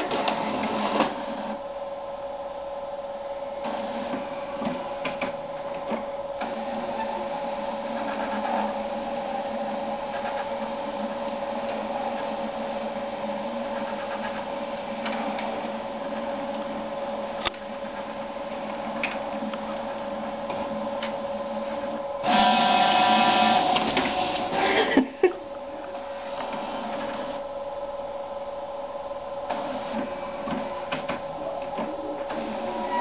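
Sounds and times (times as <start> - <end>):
printer mechanical clatter: 0.0 - 1.6, 3.6 - 24.7, 25.8 - 27.4, 29.4 - 33.0
printer motor whine: 0.0 - 33.0.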